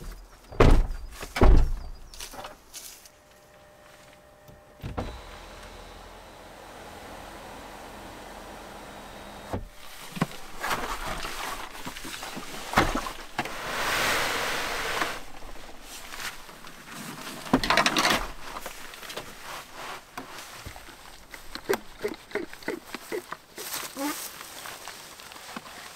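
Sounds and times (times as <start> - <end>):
plastic case scraping slide: 9.8 - 20.4.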